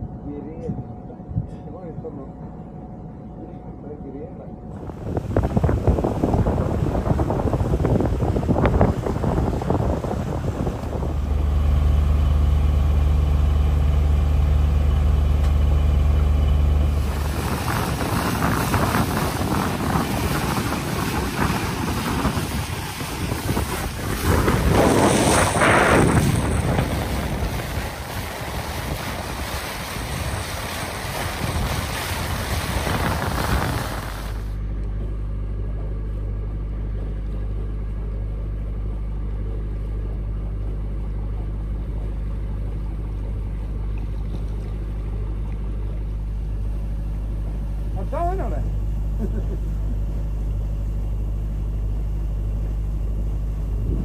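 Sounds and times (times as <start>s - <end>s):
boat engine humming: 0.0s - 54.0s
water noise: 4.6s - 54.0s
rushing wind: 4.8s - 11.6s, 16.8s - 34.6s, 53.6s - 54.0s.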